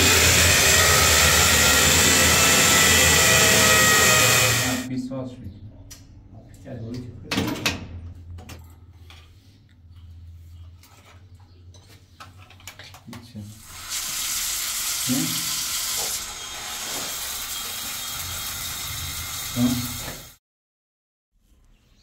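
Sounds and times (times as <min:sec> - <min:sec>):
shower water spraying: 0:13.6 - 0:20.4.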